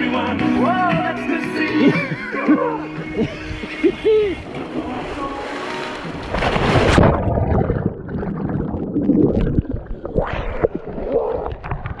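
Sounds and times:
muffled underwater churning water: 3.2 - 12.0
loud splash into pool: 4.7 - 7.9.

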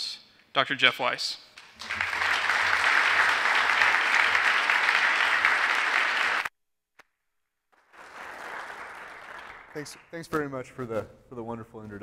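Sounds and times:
audience applauding: 1.6 - 6.5, 7.8 - 10.2.

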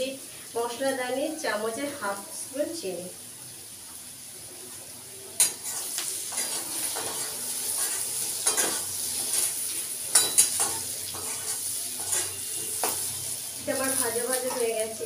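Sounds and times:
potatoes sizzling in pan: 0.0 - 15.0
metal spatula scraping pan: 5.4 - 14.6.

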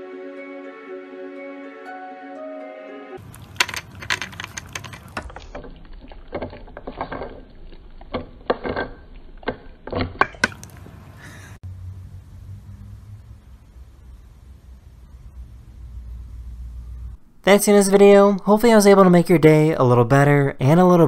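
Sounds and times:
soft music: 0.0 - 3.2
dog licking plastic bottle: 3.2 - 8.7.

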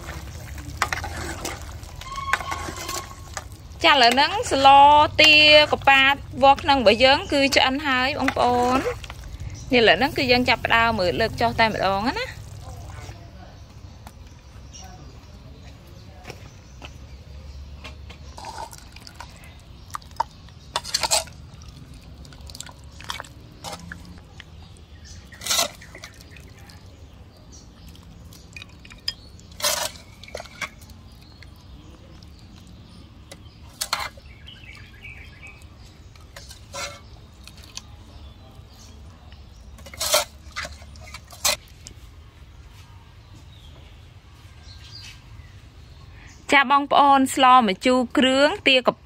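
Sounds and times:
liquid splashing: 0.0 - 4.6, 18.4 - 27.0.

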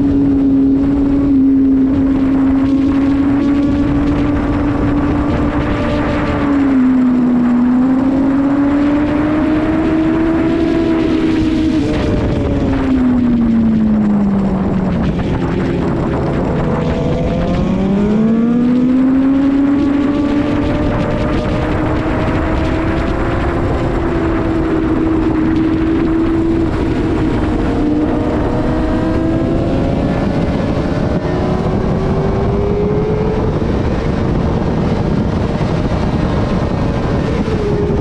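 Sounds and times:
motorcycle engine at high revs: 0.0 - 38.0
wind rush: 0.0 - 38.0.

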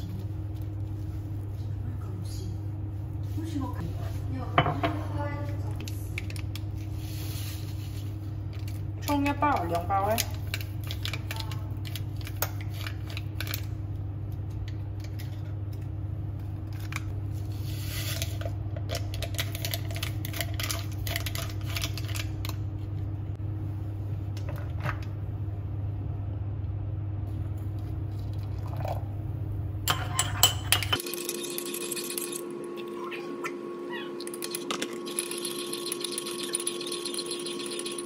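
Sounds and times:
electric kettle rumbling: 23.1 - 38.0
coffee rustling into a mug: 34.2 - 38.0.

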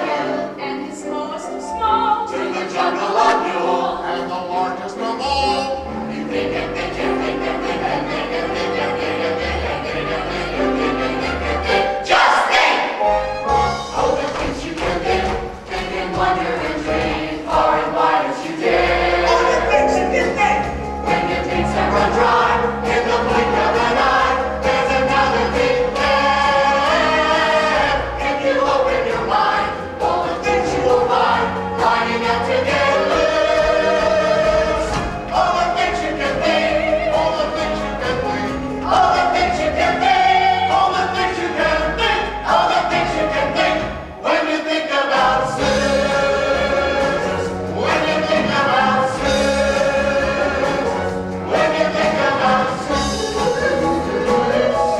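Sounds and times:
chorus singing: 0.0 - 54.9
instrumental accompaniment: 0.0 - 54.9.

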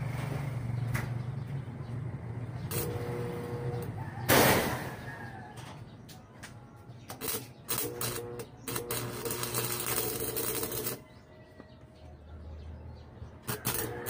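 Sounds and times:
vehicle engine running: 0.0 - 4.2.

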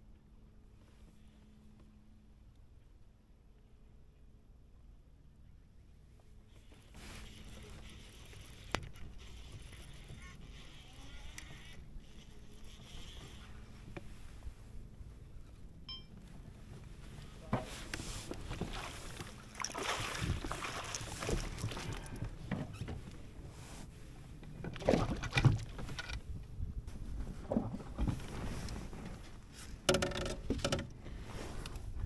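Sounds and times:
low rumble of river: 0.0 - 32.0
wind: 0.0 - 32.0
water splashing against kayak: 17.8 - 23.8, 24.5 - 26.0.

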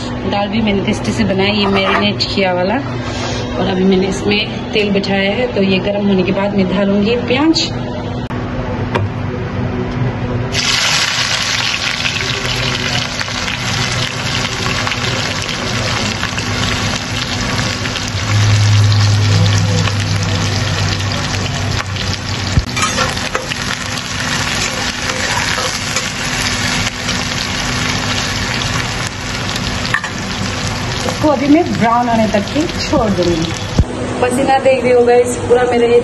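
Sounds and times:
onions sizzling in oil: 10.5 - 33.8
low hum: 13.4 - 36.0.

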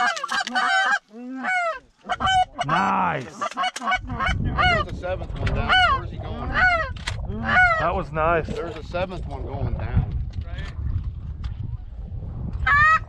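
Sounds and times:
goose honking and clucking: 0.0 - 8.0.

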